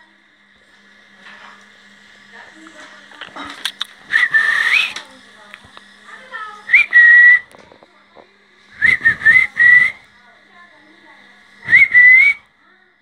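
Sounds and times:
loud whistled notes: 4.1 - 5.0, 6.7 - 7.5, 8.8 - 10.0, 11.6 - 12.4.

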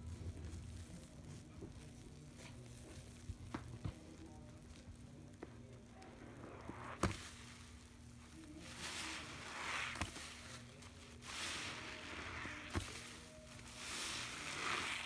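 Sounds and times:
sponge squelching: 5.8 - 15.0
liquid and foam running out: 11.2 - 15.0.

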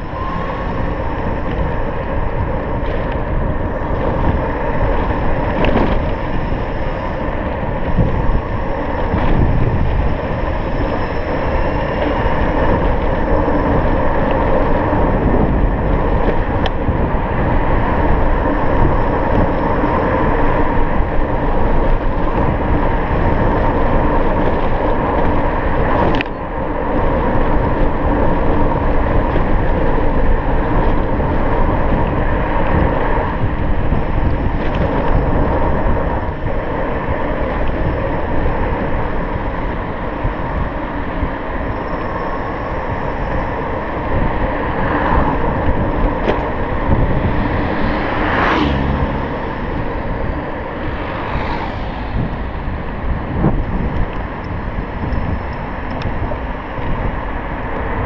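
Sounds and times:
wind and road noise: 0.0 - 58.0.

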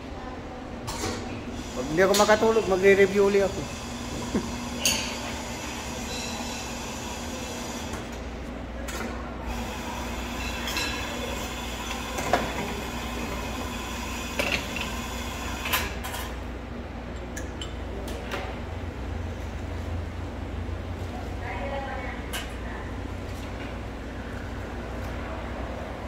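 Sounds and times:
low machine hum: 0.0 - 26.0.

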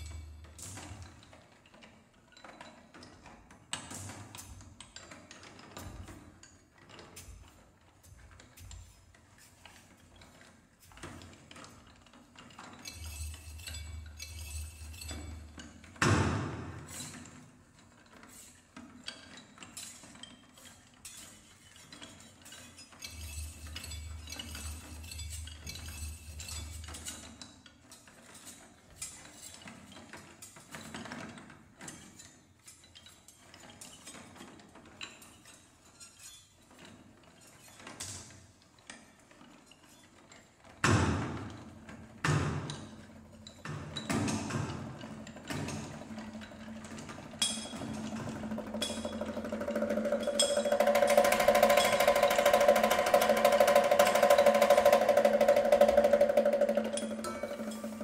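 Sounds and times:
loud struck percussion hit: 48.4 - 58.0.

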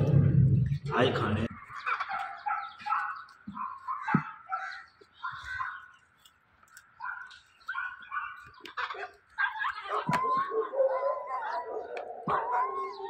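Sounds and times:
dog whining and yipping: 9.4 - 13.0.

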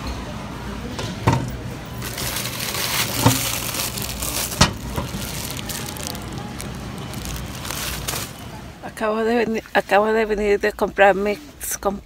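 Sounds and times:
plastic wrapper crinkling: 2.0 - 8.6.

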